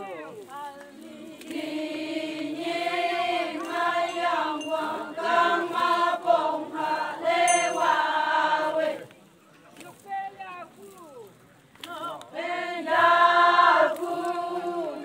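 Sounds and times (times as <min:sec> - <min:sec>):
group chanting in unison: 0:01.0 - 0:09.1, 0:11.9 - 0:15.0.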